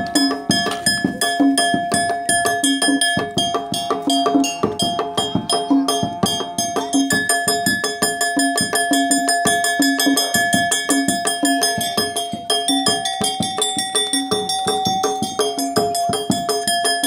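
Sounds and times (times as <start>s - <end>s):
metallophone struck with hammer: 0.0s - 17.0s.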